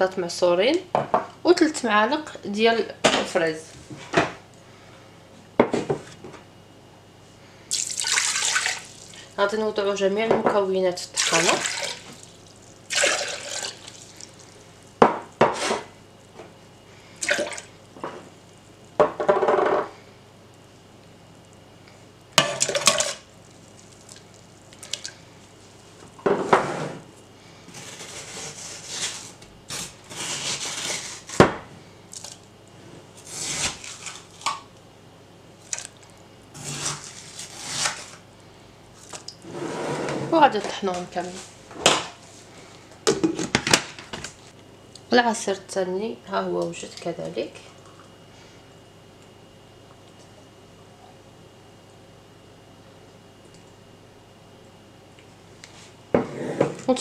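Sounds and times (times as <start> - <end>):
water pouring: 7.7 - 9.2, 11.2 - 14.5.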